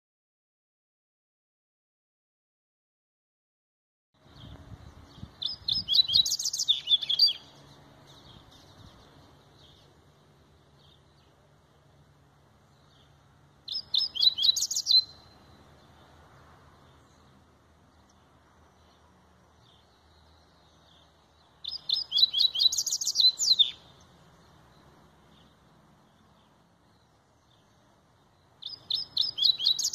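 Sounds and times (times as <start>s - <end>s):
songbird singing high sharp notes: 4.2s - 10.0s, 12.7s - 16.1s, 19.6s - 29.9s.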